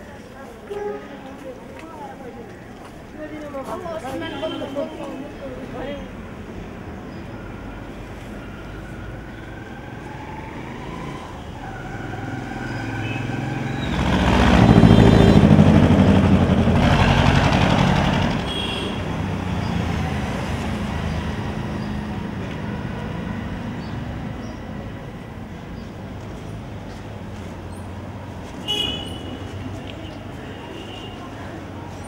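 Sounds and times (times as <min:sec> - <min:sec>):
traffic hum: 0:00.0 - 0:32.0
vehicle passing close by: 0:08.5 - 0:28.5.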